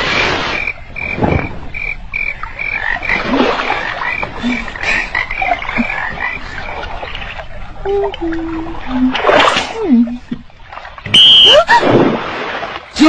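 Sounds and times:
frogs croaking: 0.0s - 8.2s
water splashing: 0.0s - 13.0s.

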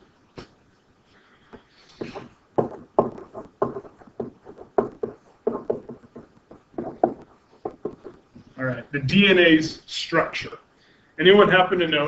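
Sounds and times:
irregular sharp knocks: 1.5s - 8.3s.

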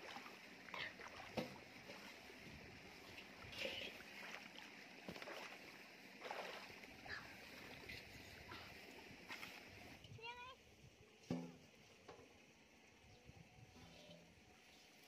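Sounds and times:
muddy water splashing: 0.0s - 10.0s.

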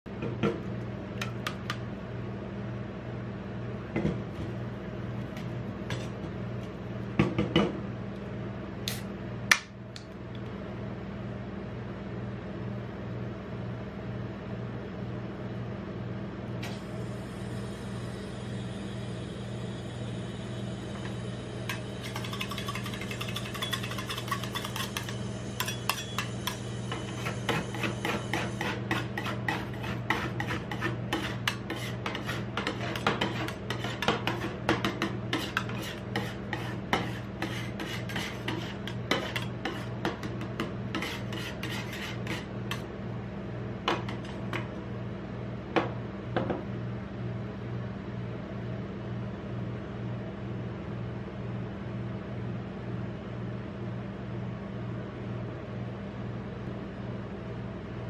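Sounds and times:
low machine hum: 0.1s - 58.0s
metal spatulas scraping plate: 22.0s - 42.8s.

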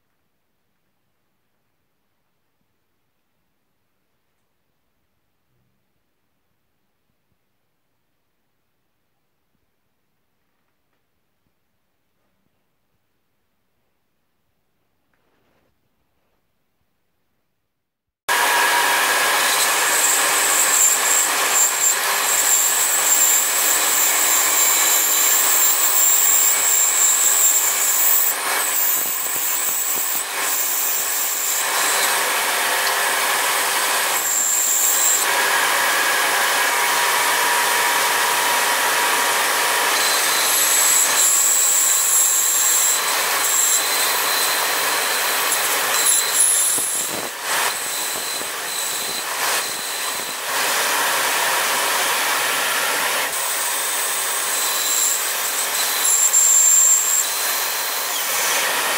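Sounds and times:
band saw cutting wood: 18.3s - 58.9s.

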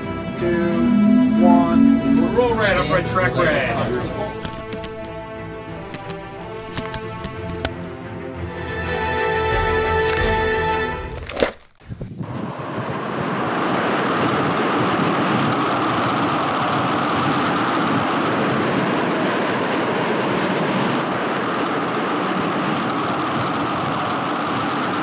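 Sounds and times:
wind: 11.2s - 25.0s.

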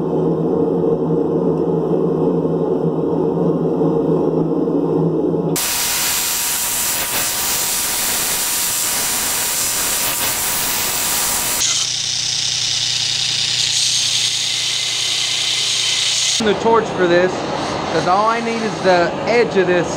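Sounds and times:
low drone: 0.0s - 6.1s
belt grinder grinding steel: 5.8s - 16.4s
grinder motor hum: 6.8s - 16.4s.

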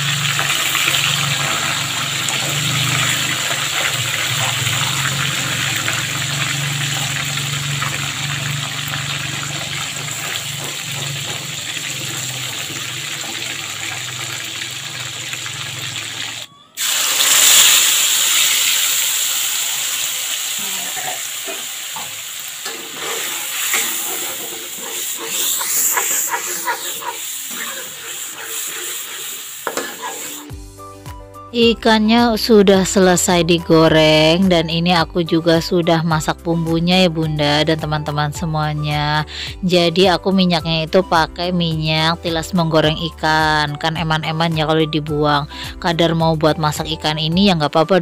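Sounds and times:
fish sizzling in hot oil: 0.0s - 30.6s
spice paste sizzling in oil: 0.0s - 31.0s
metal spatula scraping wok: 8.5s - 14.4s, 20.6s - 30.6s.

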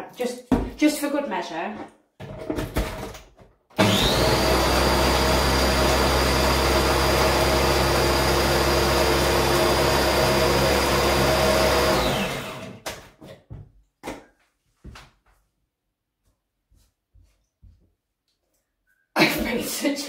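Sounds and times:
blender motor whining: 3.8s - 12.8s.

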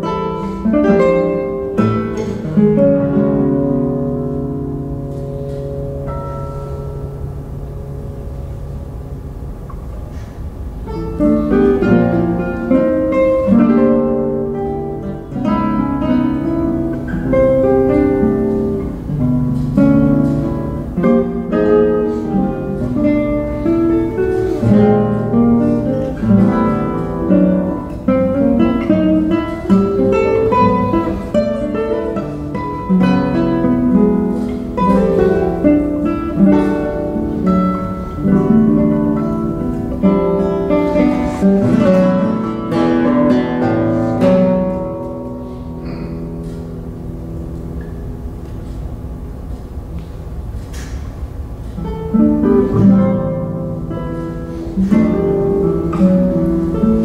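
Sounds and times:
classical guitar duo: 0.0s - 57.0s.

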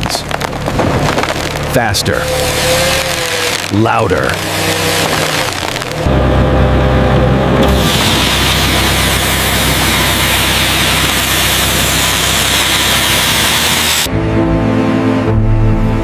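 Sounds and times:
low engine hum: 0.0s - 16.0s
saw blade cutting log: 2.1s - 6.0s, 7.6s - 14.1s.

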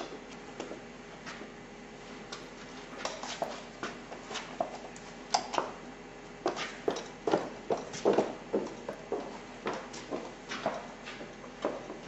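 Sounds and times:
shoes shuffling: 0.6s - 5.8s, 6.4s - 12.0s
high heels clicking on hard floor: 6.4s - 12.0s.

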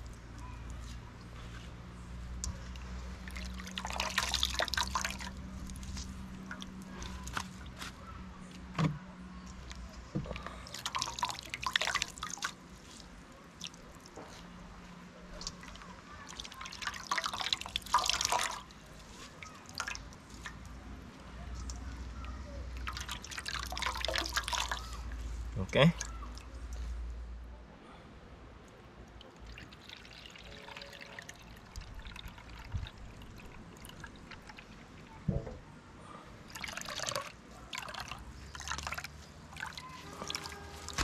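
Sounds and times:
liquid trickling and dripping: 2.1s - 7.8s, 9.4s - 27.2s, 28.6s - 35.6s, 36.4s - 41.0s
small wet clicks: 9.4s - 14.6s, 15.3s - 25.2s, 28.6s - 35.2s.

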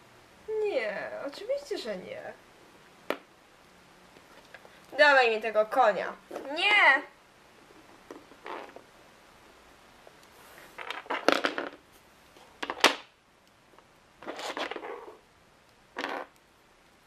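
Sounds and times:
plastic toys clattering on floor: 10.8s - 11.8s, 12.6s - 13.1s, 16.0s - 16.3s.

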